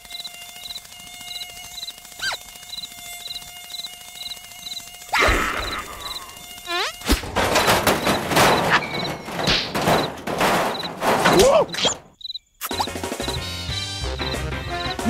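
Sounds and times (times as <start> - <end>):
cartoon mosquito buzzing: 0.0 - 7.3, 11.7 - 13.5.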